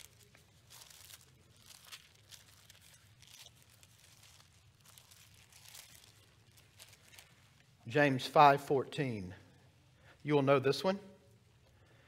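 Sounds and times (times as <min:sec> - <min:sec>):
thin pages flipping: 0:00.0 - 0:07.8.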